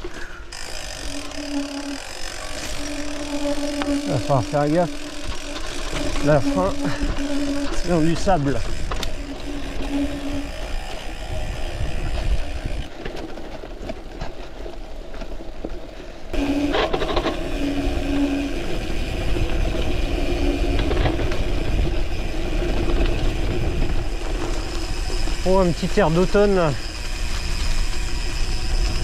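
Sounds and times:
bike freewheel hub buzzing: 0.0 - 29.0
tyres rumbling on sandy trail: 0.0 - 29.0
wind on microphone: 5.3 - 12.9, 16.8 - 25.4.

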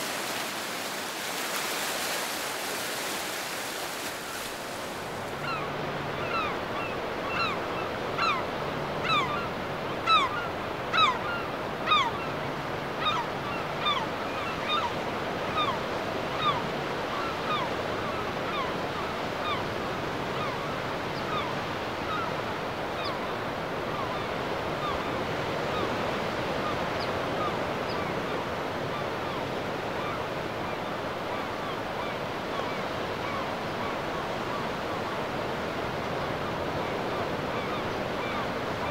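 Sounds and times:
surf washing onto beach: 0.0 - 5.6.

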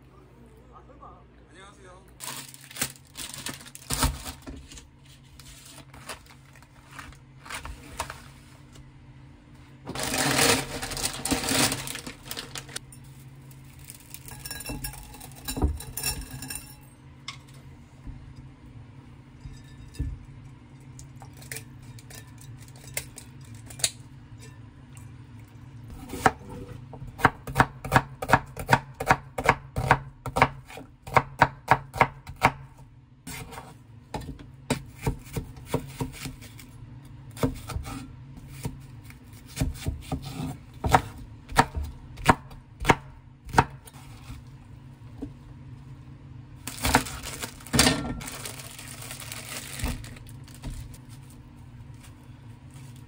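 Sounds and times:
plastic wrapping rustling: 2.2 - 8.8, 9.9 - 14.3, 46.6 - 52.1
knife chopping on wooden board: 26.1 - 32.7, 39.4 - 43.8.

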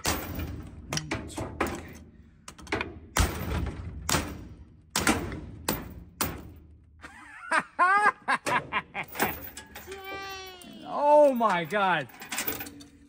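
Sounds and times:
hammers striking metal padlock: 0.0 - 6.7
person shouting: 9.9 - 11.2.

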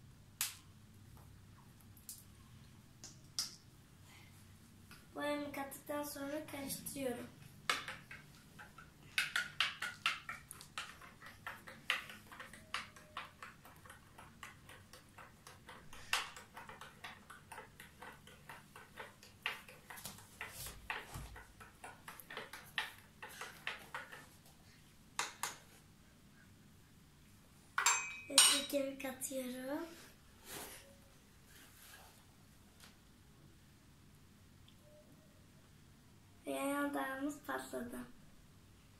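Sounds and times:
spoon clinking against cup: 27.8 - 28.7.

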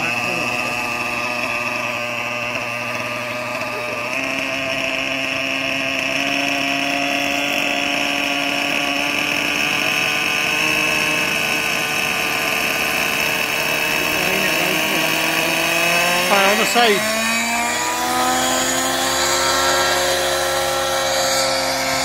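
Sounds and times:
model helicopter engine idling: 0.0 - 22.0.

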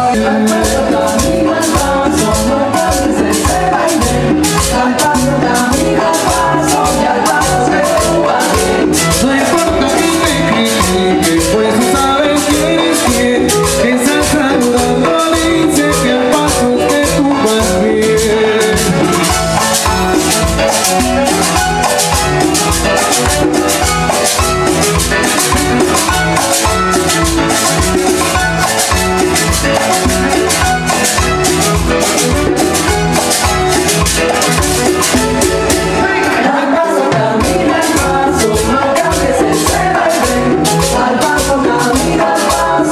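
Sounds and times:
bass line: 0.0 - 36.6
salsa band playing: 0.0 - 42.9
steady drum beat: 0.0 - 42.9.

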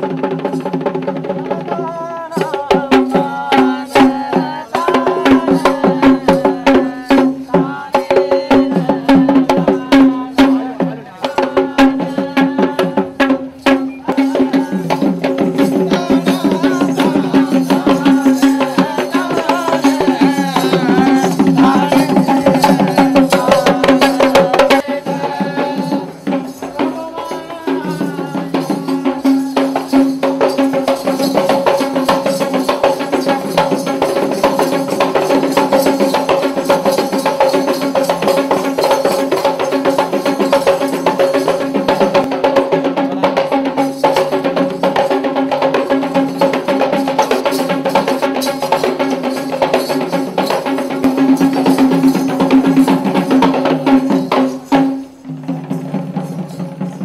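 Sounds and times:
fast traditional drumming: 0.0 - 57.0.

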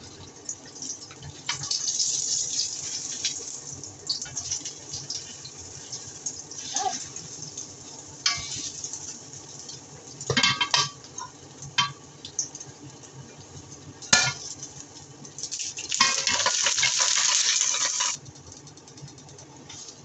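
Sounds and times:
loud frying sizzle: 0.0 - 20.0
spatulas scraping a metal wok: 8.3 - 8.9, 16.0 - 18.2.

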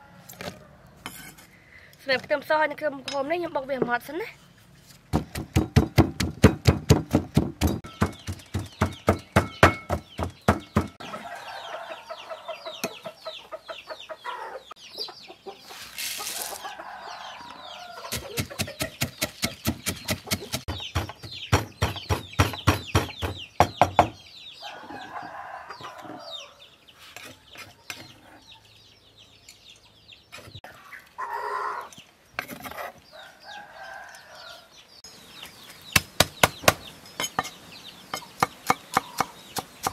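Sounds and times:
pestle pounding in wooden mortar: 5.1 - 11.0, 18.1 - 24.2
chickens clucking: 7.8 - 23.5, 24.6 - 34.7, 35.3 - 39.9.

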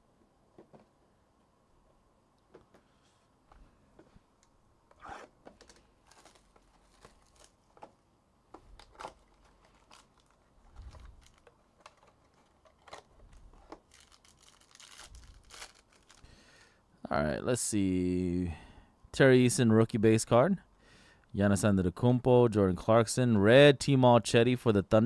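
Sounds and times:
wrappers tearing and crinkling: 5.0 - 7.9, 8.7 - 16.3
cards clicking and rustling: 5.4 - 16.2.

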